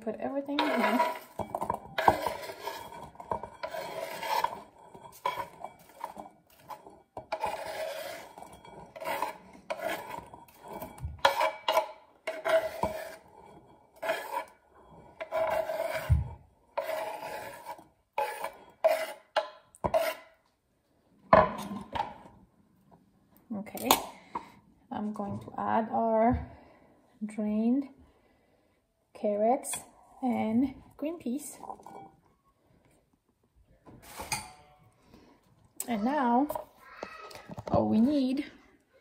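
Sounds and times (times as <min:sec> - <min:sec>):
knife scraping a wooden board: 0:00.5 - 0:20.4.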